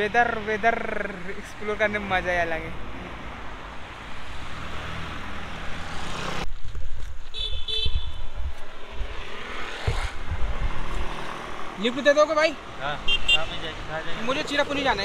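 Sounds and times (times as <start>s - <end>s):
cars driving past: 0.0s - 6.5s, 8.6s - 15.0s
wind buffeting microphone: 6.5s - 11.7s.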